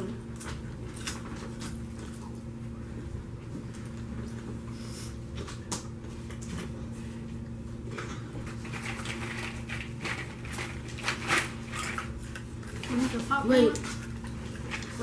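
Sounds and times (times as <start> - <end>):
steady low hum: 0.0 - 15.0
chewing crunchy popcorn: 0.1 - 2.6, 7.4 - 15.0.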